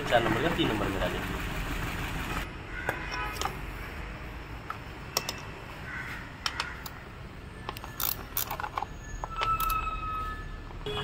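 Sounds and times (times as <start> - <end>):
ratchet wrench clicking: 7.7 - 9.8.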